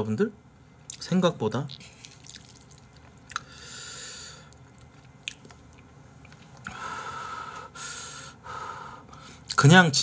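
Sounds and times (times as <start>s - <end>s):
person chewing and slurping noodles: 1.7s - 3.6s.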